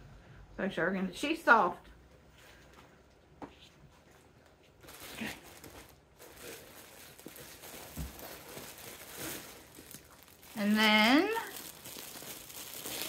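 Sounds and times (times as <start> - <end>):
faint rustling and handling: 2.2 - 13.0.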